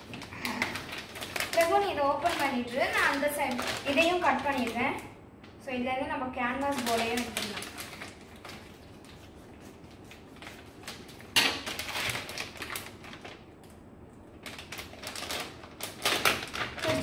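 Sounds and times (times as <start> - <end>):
plastic packaging crinkling: 0.0 - 5.6, 6.4 - 17.0
scissors cutting plastic: 14.4 - 17.0.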